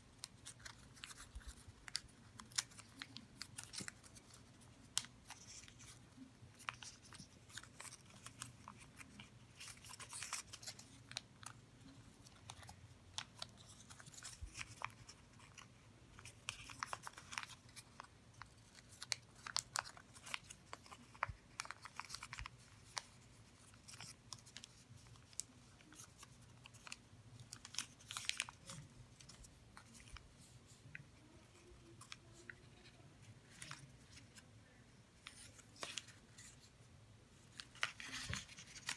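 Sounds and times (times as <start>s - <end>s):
paper crinkling while folded: 0.0s - 38.9s.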